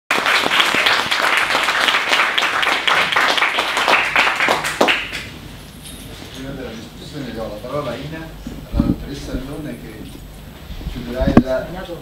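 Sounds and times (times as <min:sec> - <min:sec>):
audience applauding: 0:00.1 - 0:05.3.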